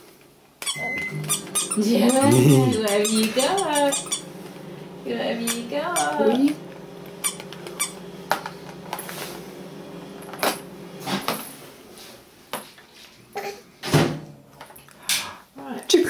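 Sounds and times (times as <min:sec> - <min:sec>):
rising vocal squeal: 0:00.8 - 0:04.0.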